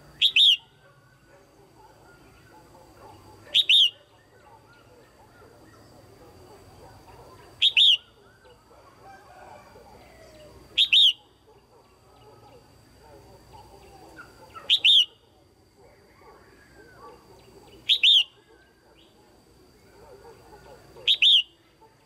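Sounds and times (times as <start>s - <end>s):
faint bird chirping: 0.0s - 9.0s, 9.6s - 22.0s
bird double-note calls: 0.2s - 0.8s, 3.5s - 4.0s, 7.6s - 8.2s, 10.8s - 11.3s, 14.5s - 15.2s, 17.8s - 18.4s, 21.1s - 21.6s.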